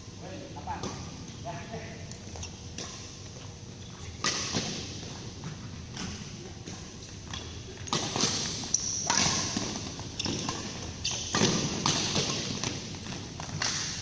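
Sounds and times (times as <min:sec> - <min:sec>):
shoe squeak: 0:07.8 - 0:11.7
racket striking shuttlecock: 0:07.9 - 0:14.0.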